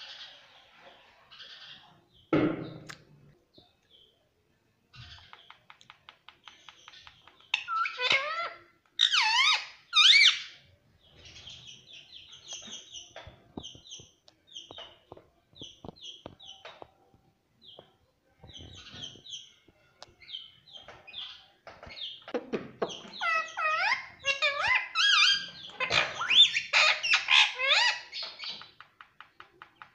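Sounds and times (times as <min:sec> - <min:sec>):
parakeet vocalizing: 0:07.5 - 0:10.6, 0:23.0 - 0:28.4.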